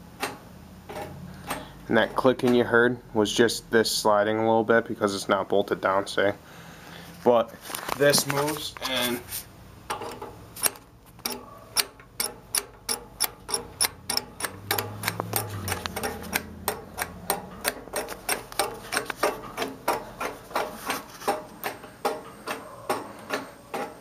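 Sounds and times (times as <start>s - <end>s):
rhythmic pedal clicking: 10.6s - 24.0s.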